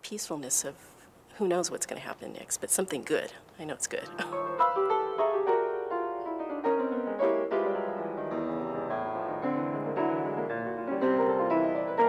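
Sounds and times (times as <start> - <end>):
solo grand piano: 4.1 - 12.0.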